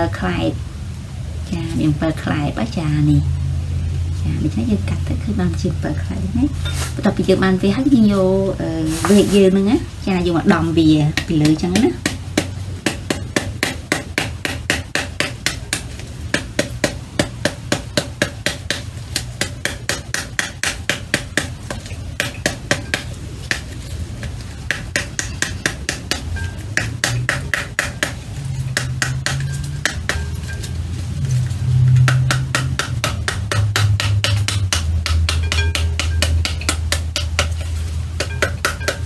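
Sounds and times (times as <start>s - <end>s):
metal spoon whacking pomegranate: 32.0s - 39.0s.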